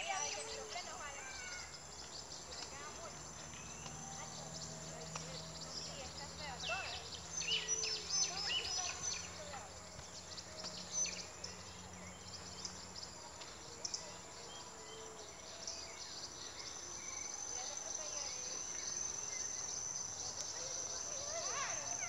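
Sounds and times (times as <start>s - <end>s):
bird chirps and calls: 0.0s - 22.0s
insects buzzing: 0.0s - 22.0s.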